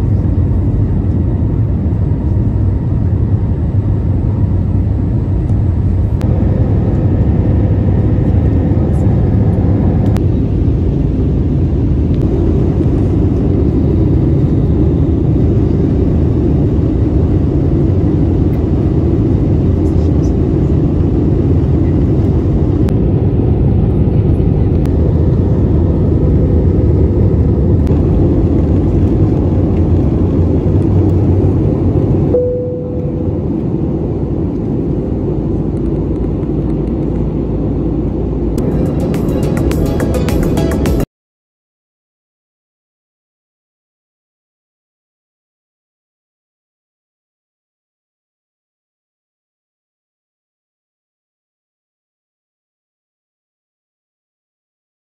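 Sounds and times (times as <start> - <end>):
airplane cabin engine roar: 0.0 - 41.1.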